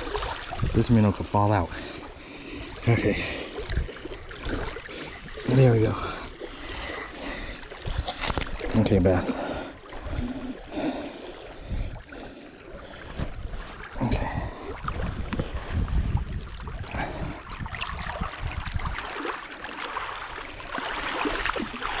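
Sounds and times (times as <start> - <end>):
wind rumble on microphone: 0.0 - 1.1, 11.6 - 12.1, 12.8 - 19.3
water sloshing at shoreline: 0.0 - 22.0
fish splashing: 16.6 - 22.0.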